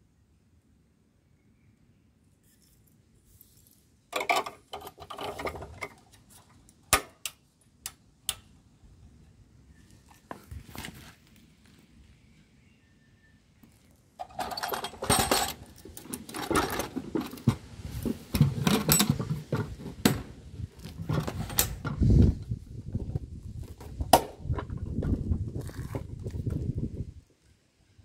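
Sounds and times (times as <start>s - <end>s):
plastic lamp cover scraping and rattling: 4.2s - 6.1s, 14.2s - 22.4s.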